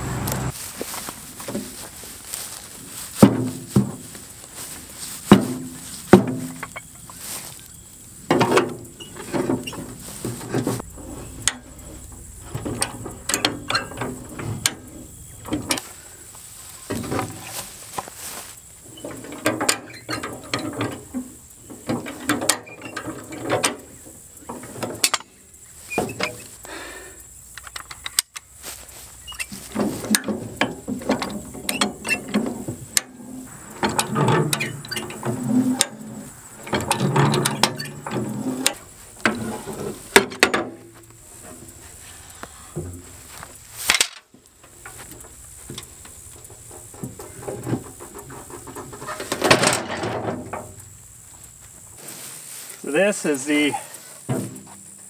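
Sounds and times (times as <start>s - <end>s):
loud metal clanks: 8.3s - 15.9s, 29.5s - 41.8s.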